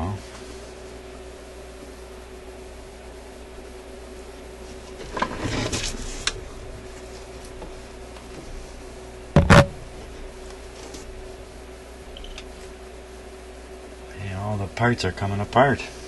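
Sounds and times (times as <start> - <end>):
board scraping and rattling: 5.0 - 6.2.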